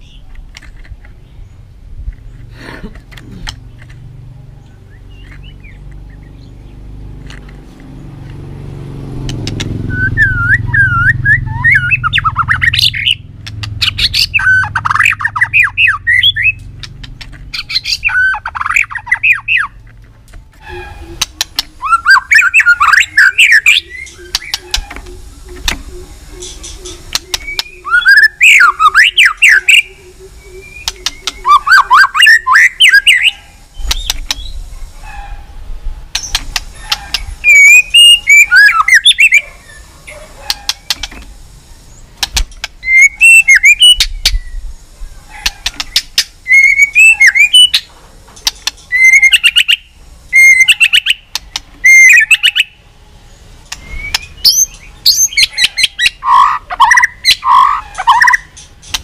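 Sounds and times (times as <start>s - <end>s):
sharp clicking bird notes: 2.0s - 8.4s, 9.0s - 34.7s, 36.1s - 44.7s, 45.3s - 52.7s, 53.6s - 59.0s
bird singing fluty whistles: 9.8s - 13.2s, 20.7s - 34.6s, 37.1s - 39.5s, 42.8s - 44.6s, 45.8s - 47.9s, 48.9s - 51.2s, 51.8s - 52.8s, 53.8s - 58.5s.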